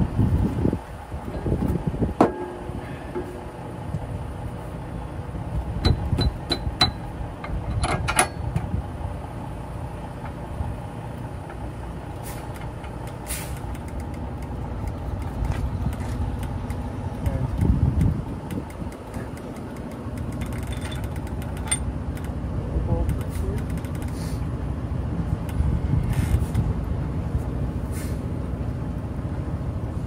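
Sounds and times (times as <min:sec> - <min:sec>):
low vehicle rumble: 0:00.0 - 0:30.0
brief hiss: 0:13.3 - 0:13.6, 0:27.9 - 0:28.2
metal tools clinking: 0:20.2 - 0:21.9.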